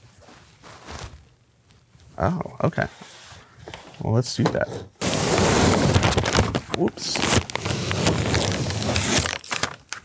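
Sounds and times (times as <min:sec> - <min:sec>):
paper tearing and crackling: 0:05.0 - 0:10.0.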